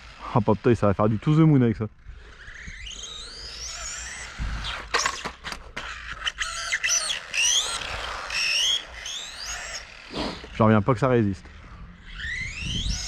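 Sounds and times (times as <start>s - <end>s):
electric motor whining: 0.0s - 13.0s
short scrapes: 10.0s - 10.6s.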